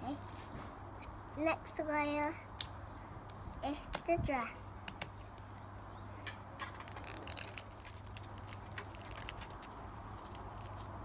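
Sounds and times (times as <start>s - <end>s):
plastic crinkling and clicks: 6.6s - 11.0s.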